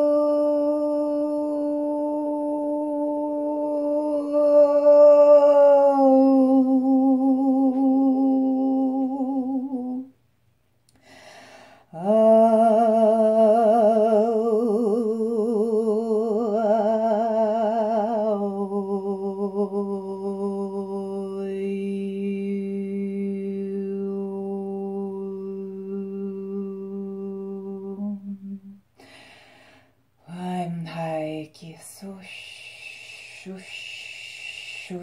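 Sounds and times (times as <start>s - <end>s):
breath: 10.9s - 11.9s, 29.0s - 30.0s.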